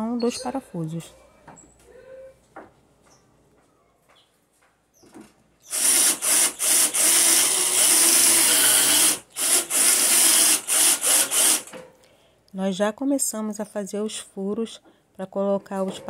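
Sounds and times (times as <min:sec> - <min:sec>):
cordless drill boring into wood: 0:05.6 - 0:11.7.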